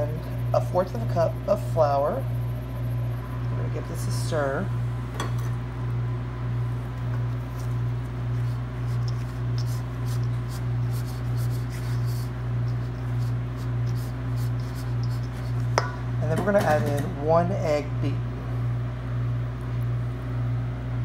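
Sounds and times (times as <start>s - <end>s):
loud low hum: 0.0s - 21.0s
spatula scraping a metal bowl: 7.5s - 15.9s.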